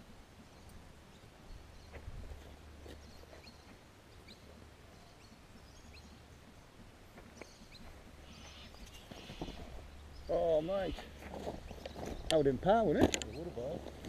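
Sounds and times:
bird chirps: 0:07.4 - 0:12.4.

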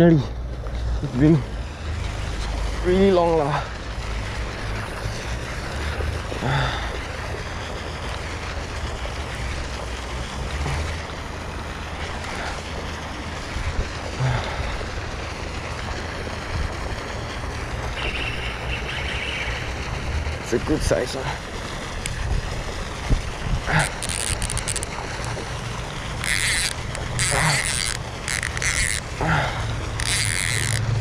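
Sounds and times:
wind rumble on microphone: 0:22.0 - 0:25.5.

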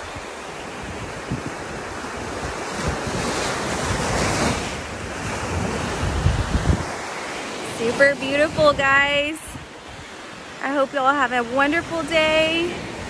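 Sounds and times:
small surf breaking on sand: 0:00.0 - 0:10.8
wind buffeting microphone: 0:00.0 - 0:13.0.

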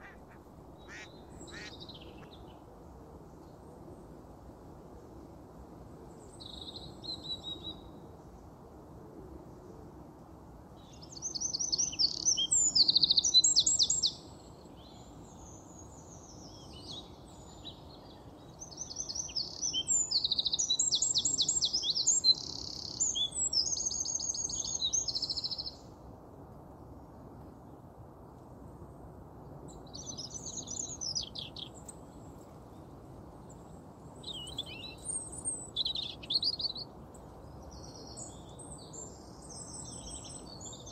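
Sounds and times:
low background noise: 0:00.0 - 0:40.9
songbird singing trills: 0:11.0 - 0:15.2, 0:16.3 - 0:25.8, 0:29.9 - 0:32.0, 0:34.2 - 0:40.9.

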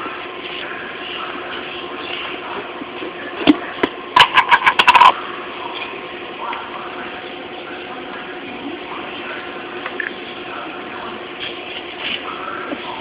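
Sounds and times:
steady low hum: 0:00.0 - 0:13.0
food container rattling: 0:04.2 - 0:05.1.

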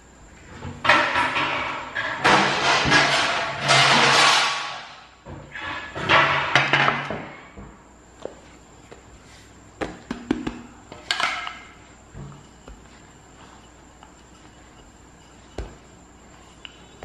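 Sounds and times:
rolling pin knocking on countertop: 0:09.8 - 0:11.5.

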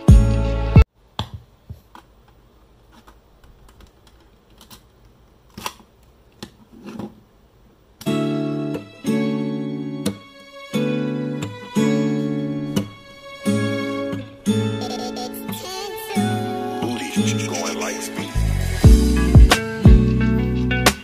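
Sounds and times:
keyboard music: 0:11.0 - 0:21.0.

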